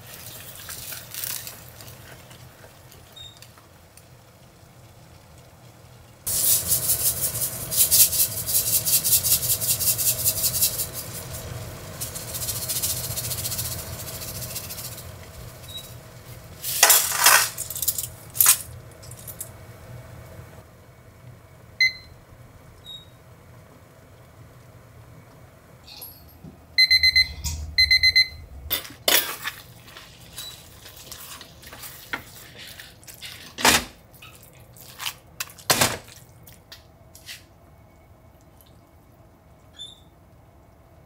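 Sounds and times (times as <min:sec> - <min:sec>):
kitchen timer beeps: 0:21.8 - 0:22.2, 0:26.8 - 0:28.5.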